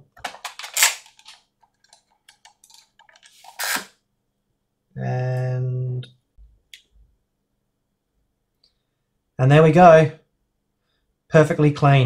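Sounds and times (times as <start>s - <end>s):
connector clicks and rustles: 0.2s - 3.4s.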